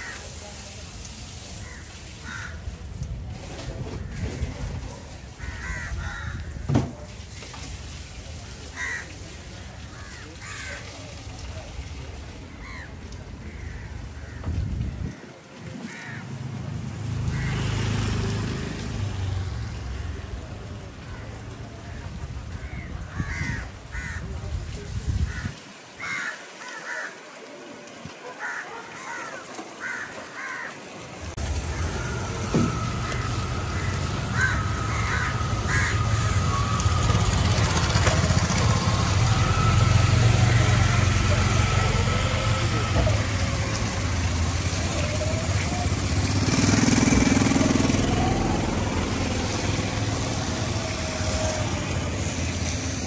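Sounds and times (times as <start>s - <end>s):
crows cawing: 0.0s - 0.2s, 1.6s - 2.6s, 5.4s - 6.6s, 8.7s - 9.1s, 9.9s - 10.9s, 12.6s - 14.5s, 15.9s - 16.3s, 17.3s - 17.8s, 22.6s - 24.3s, 25.3s - 27.3s, 28.2s - 30.8s, 31.6s - 37.6s.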